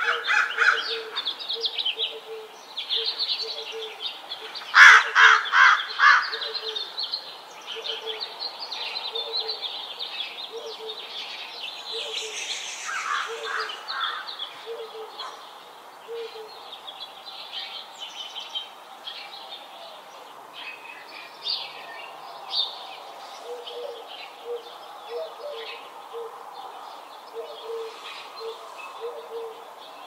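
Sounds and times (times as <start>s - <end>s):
birds chirping and singing: 0.0s - 30.0s
short low bird calls: 11.8s - 15.4s.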